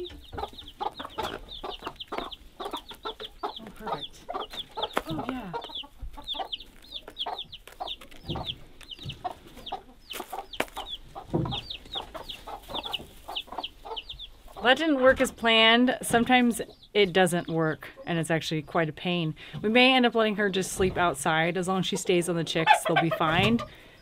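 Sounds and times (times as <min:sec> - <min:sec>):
hen clucking low: 0:00.0 - 0:08.5, 0:22.6 - 0:23.7
chicks peeping: 0:00.0 - 0:24.0.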